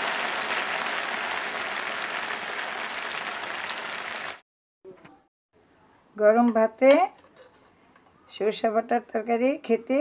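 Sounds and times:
curry sizzling in a frying pan: 0.0 - 4.4.

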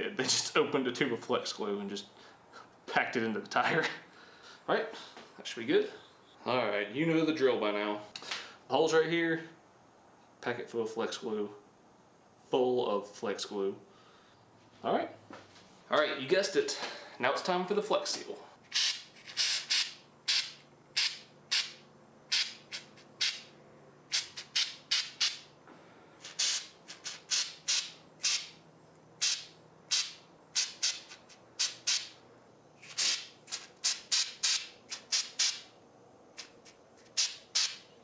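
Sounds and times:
aerosol can spraying hissing bursts: 18.7 - 23.5, 24.1 - 25.5, 26.2 - 28.6, 29.2 - 32.2, 32.8 - 35.7, 36.4 - 37.8.

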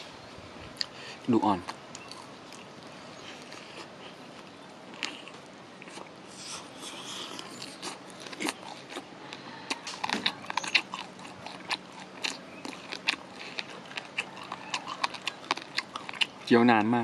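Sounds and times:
crunchy chewing: 0.6 - 17.0
biting into fried chicken: 3.3 - 16.5.

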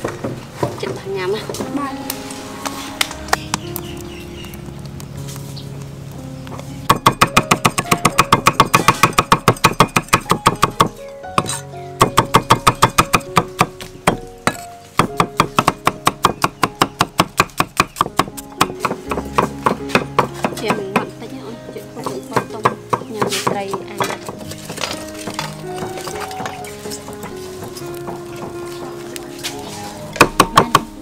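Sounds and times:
background music: 0.0 - 31.0
cleaver chopping on wooden block: 6.9 - 21.0, 30.2 - 30.9.

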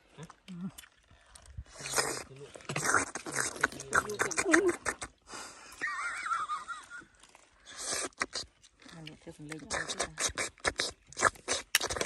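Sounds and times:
wet slurping mouth sounds: 0.2 - 5.3, 7.6 - 8.8, 9.5 - 12.0.

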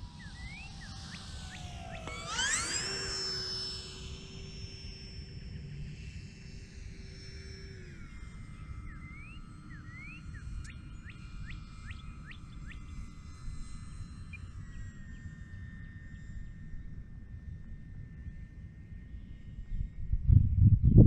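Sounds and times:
electric motor and propeller whine: 0.0 - 20.6
wind rumbling on microphone: 19.7 - 21.0.

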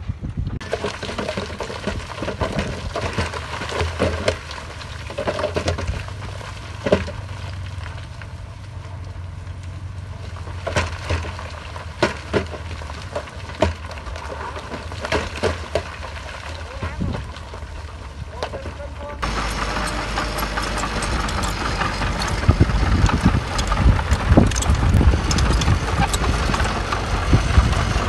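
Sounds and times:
diesel engine under load: 0.0 - 28.0
material cracking and breaking: 0.6 - 18.9.

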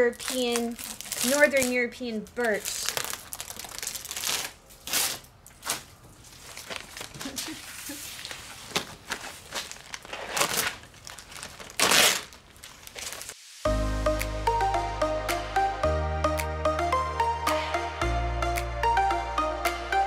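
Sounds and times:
plastic wrap crinkling and tearing: 0.0 - 13.4.

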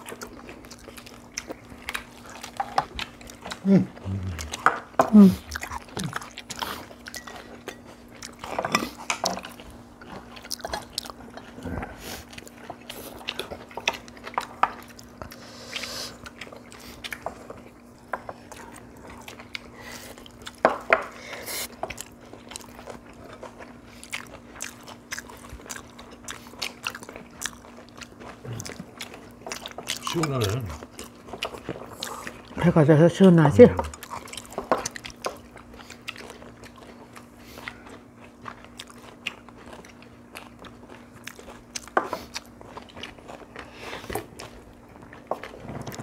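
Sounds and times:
faint steady hum: 0.0 - 46.0
people chewing and crunching: 0.0 - 46.0.

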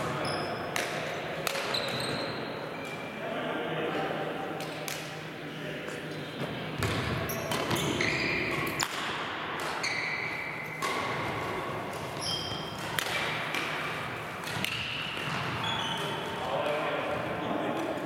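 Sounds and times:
racket striking shuttlecock: 0.7 - 1.7, 8.5 - 9.8, 10.8 - 15.4
shoes squeaking on wooden floor: 1.7 - 3.0, 7.2 - 8.7.

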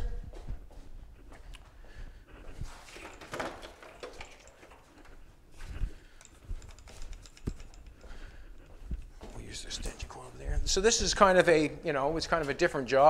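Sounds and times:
footsteps on concrete floor: 0.0 - 3.6, 4.4 - 12.8
tools knocking and clattering: 2.8 - 5.3, 6.0 - 10.0.

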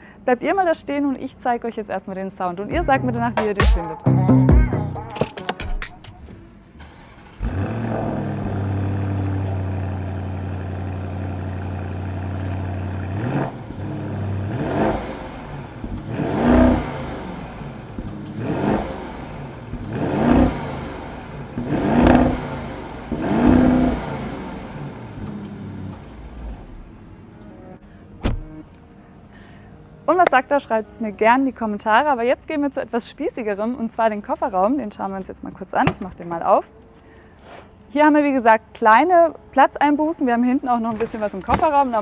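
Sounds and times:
car engine idling and revving: 6.8 - 27.4.

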